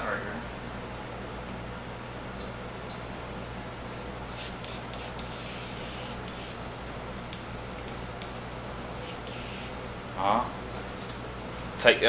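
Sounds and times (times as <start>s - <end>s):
airbrush spraying hiss: 4.3s - 9.8s.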